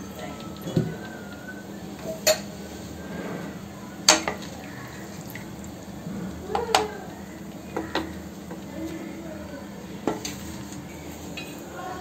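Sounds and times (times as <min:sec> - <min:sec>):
water dripping into a pot: 0:04.1 - 0:09.0.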